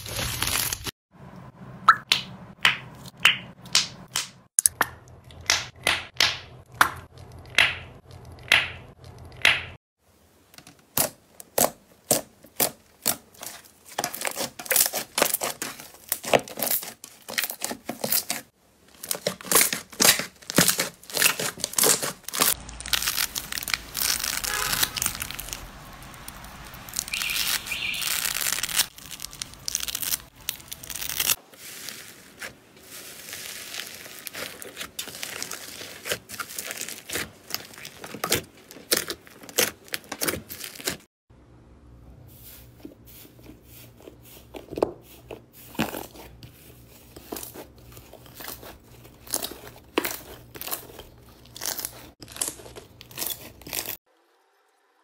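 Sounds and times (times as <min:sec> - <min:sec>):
slime crackling and tearing: 0:10.9 - 0:41.0, 0:45.6 - 0:54.0
scissors cutting sponge: 0:11.0 - 0:22.6.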